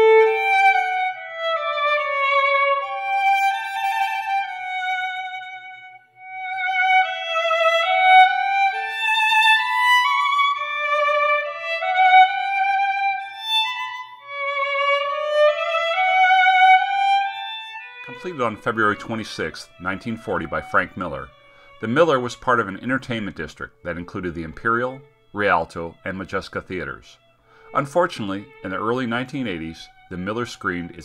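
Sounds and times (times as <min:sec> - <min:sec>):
solo violin slow melody: 0:00.0 - 0:31.0.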